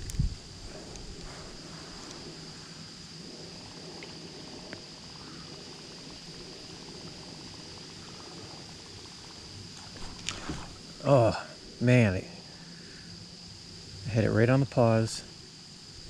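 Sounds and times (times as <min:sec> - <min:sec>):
faint ticks: 0:00.0 - 0:01.4, 0:03.9 - 0:05.5
wind rumble on microphone: 0:00.0 - 0:04.9.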